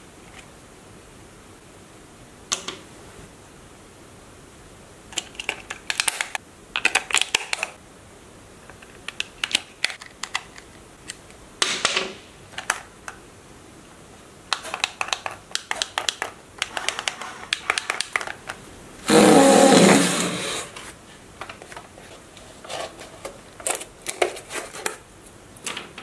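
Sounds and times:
plastic clicking and rattling: 5.2 - 7.7, 14.5 - 18.6.

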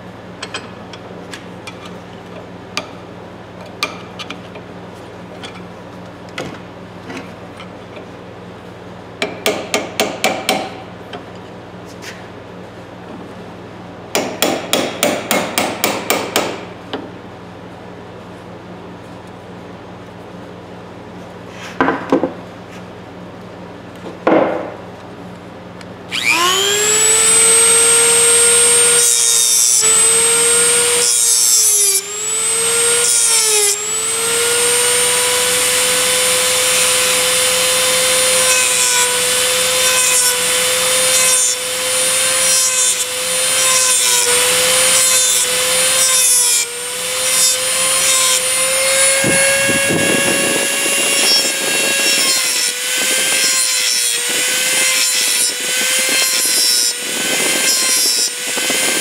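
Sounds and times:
rotary tool grinding metal: 26.1 - 59.0.

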